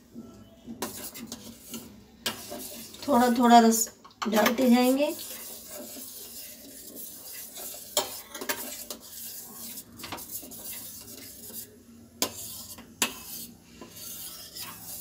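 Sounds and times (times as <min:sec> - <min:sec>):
spoon stirring boiling milk: 0:00.4 - 0:15.0
spoon clinking against pot: 0:07.6 - 0:09.1.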